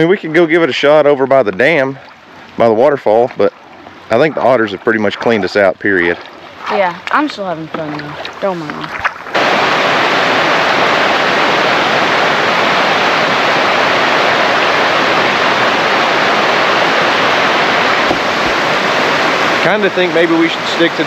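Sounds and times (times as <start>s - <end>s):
waterfall rushing: 9.3s - 21.0s.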